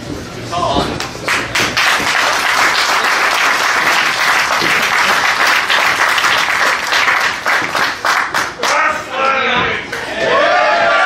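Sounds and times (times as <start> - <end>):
audience applauding: 1.3 - 8.8.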